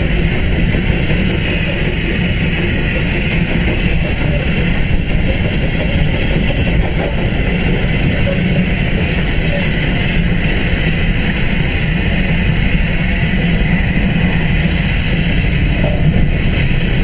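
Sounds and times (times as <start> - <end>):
train running on track: 0.0 - 17.0
wind buffeting microphone: 0.0 - 17.0.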